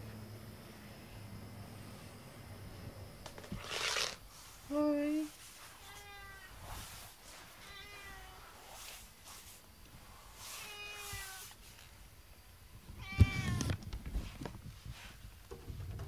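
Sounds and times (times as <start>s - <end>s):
cat meowing: 5.8s - 6.6s, 7.5s - 8.6s, 10.6s - 11.6s, 13.0s - 13.7s.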